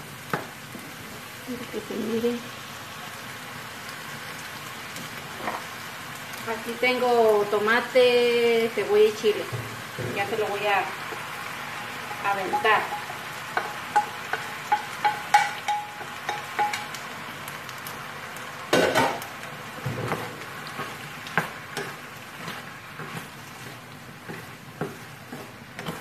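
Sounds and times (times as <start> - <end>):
vegetables sizzling in a pan: 0.0 - 26.0
spoon clinking against pan: 12.1 - 17.0.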